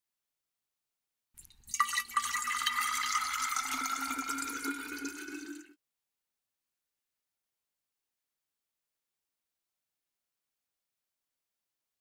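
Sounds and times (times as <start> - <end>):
rushing pouring water: 1.4 - 5.8.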